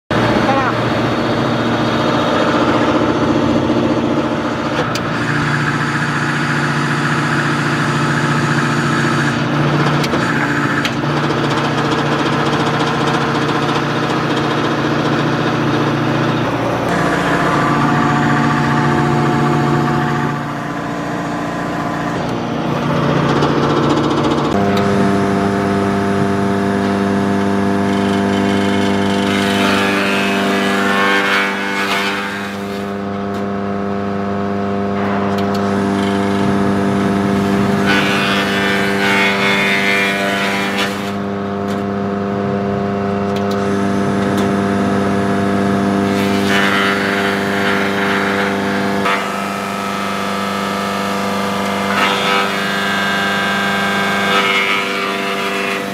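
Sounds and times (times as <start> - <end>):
wood chipper droning: 0.1 - 55.9.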